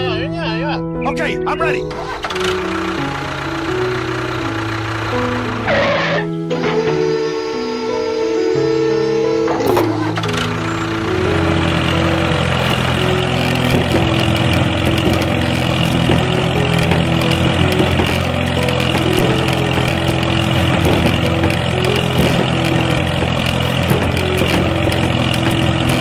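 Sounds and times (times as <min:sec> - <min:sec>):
tractor engine running: 0:01.6 - 0:26.0.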